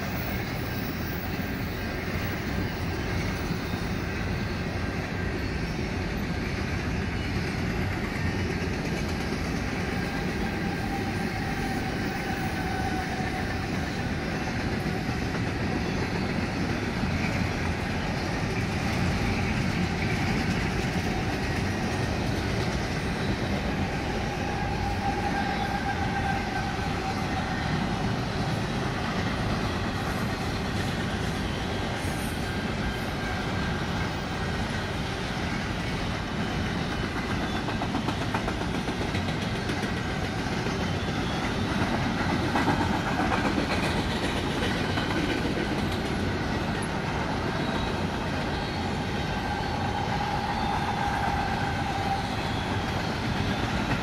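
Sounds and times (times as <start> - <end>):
train wheels rumbling on rail: 0.0 - 54.0
faint high squeal: 23.1 - 28.8, 47.4 - 53.9.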